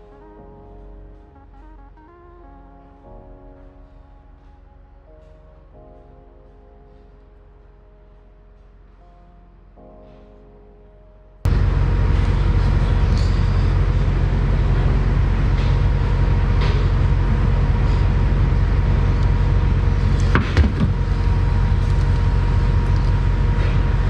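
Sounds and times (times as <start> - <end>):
loud mechanical hum: 11.5 - 24.0.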